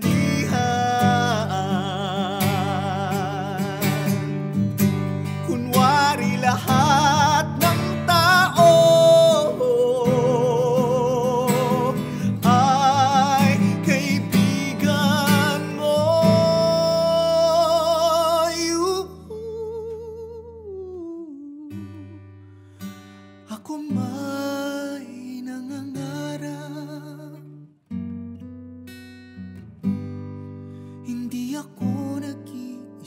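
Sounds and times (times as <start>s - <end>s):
man singing with vibrato: 0.0s - 22.3s, 23.5s - 27.6s, 31.0s - 33.0s
strummed acoustic guitar: 0.0s - 33.0s.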